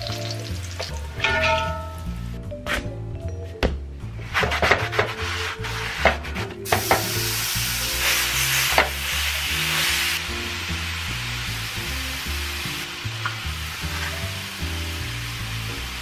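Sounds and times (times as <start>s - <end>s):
meat sizzling in a skillet: 0.0s - 1.0s, 6.6s - 16.0s
background music: 0.0s - 16.0s
wooden spoon scraping: 4.2s - 6.7s.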